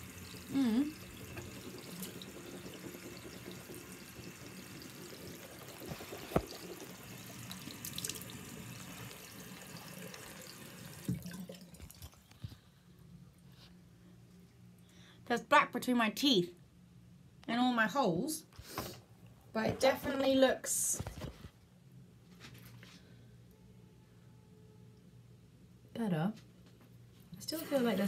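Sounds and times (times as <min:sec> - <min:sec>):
tap running into sink: 0:05.8 - 0:08.3, 0:10.9 - 0:12.0.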